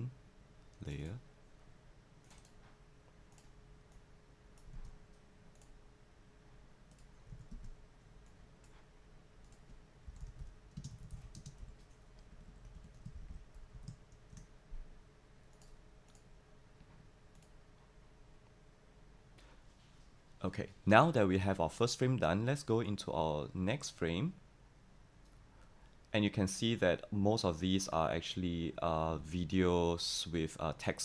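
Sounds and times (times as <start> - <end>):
computer keyboard typing: 2.2 - 2.6, 6.9 - 8.8, 9.4 - 14.5.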